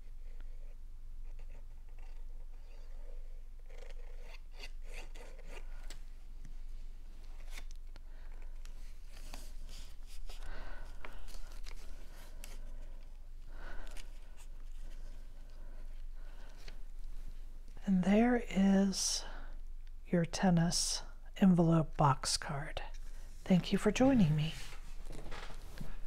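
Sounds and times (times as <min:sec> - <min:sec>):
paper card rustling: 0:07.2 - 0:17.2.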